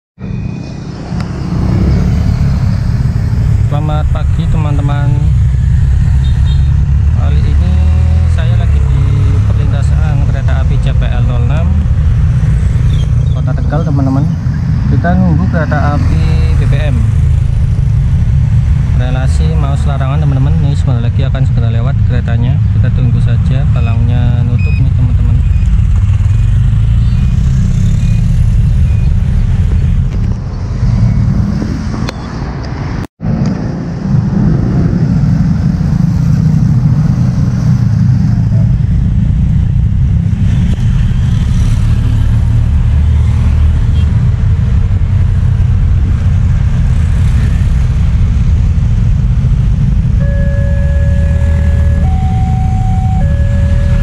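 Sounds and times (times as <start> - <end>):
motorcycles and traffic rumble: 0.2 - 54.0
two-note warning siren: 50.2 - 54.0.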